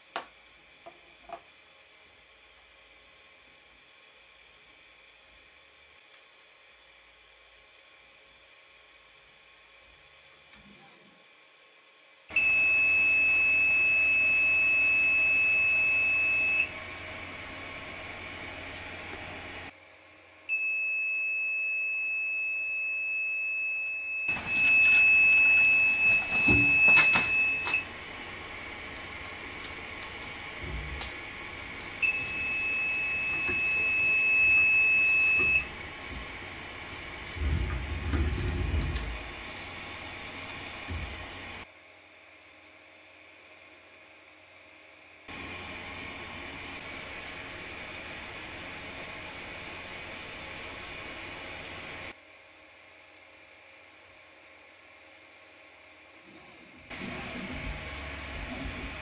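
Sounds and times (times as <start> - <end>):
high-pitched alarm beep: 12.4 - 16.7, 20.5 - 27.9, 32.0 - 35.8
printer fans humming: 24.3 - 41.6, 56.8 - 59.0.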